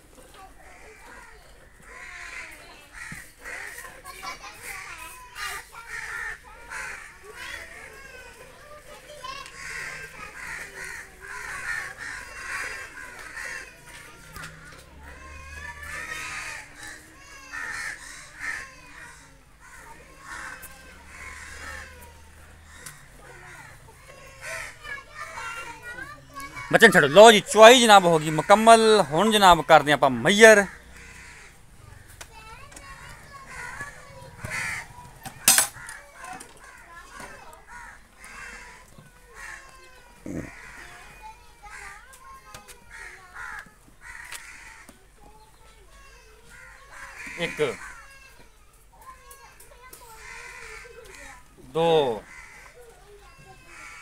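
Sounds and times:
crows cawing: 0.6s - 45.4s, 46.0s - 54.0s
harsh bird calls: 9.4s - 42.0s, 42.9s - 48.4s, 50.1s - 54.0s.

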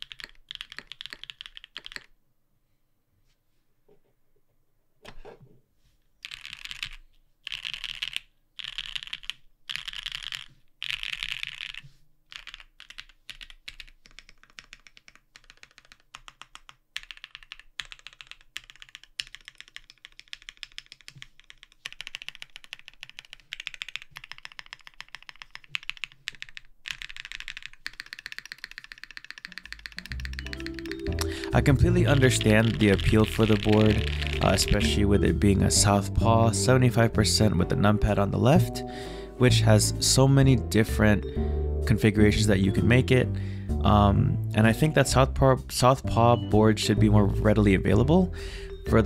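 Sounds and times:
mechanical keyboard typing: 0.0s - 2.1s, 6.2s - 35.9s.

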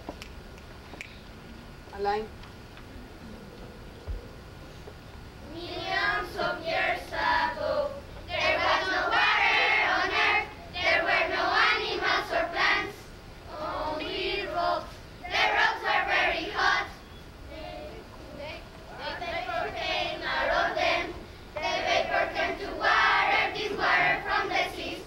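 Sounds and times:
children singing together: 5.4s - 18.1s, 18.9s - 25.0s.

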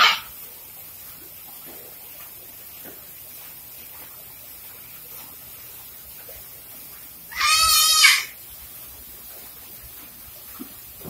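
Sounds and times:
parrot call: 0.0s - 0.3s, 7.3s - 8.4s.

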